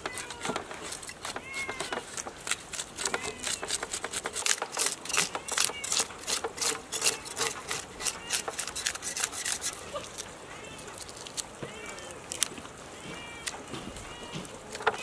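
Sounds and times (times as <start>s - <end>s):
knife scraping fish scales: 0.0s - 11.5s.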